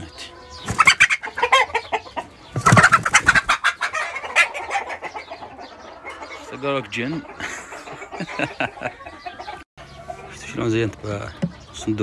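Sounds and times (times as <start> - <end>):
hens clucking and squawking: 0.0 - 12.0.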